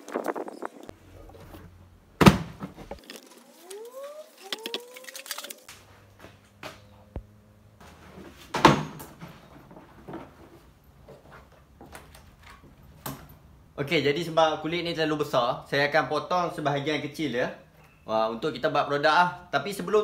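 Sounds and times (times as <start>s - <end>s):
stiff hide rustling and crackling: 0.0s - 6.6s.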